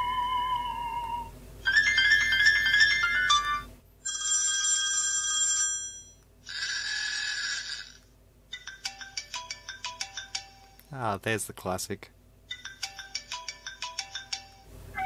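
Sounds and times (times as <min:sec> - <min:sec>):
phone ringtone tunes: 0:01.6 - 0:10.8, 0:12.5 - 0:14.7.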